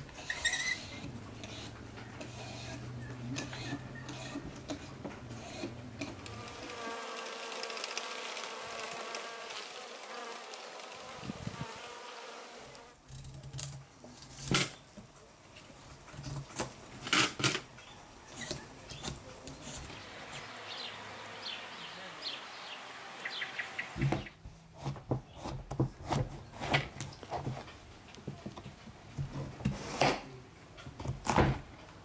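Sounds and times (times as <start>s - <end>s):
peeler scraping zucchini skin: 0.2s - 6.3s
bee buzzing: 6.0s - 13.0s, 19.8s - 24.3s.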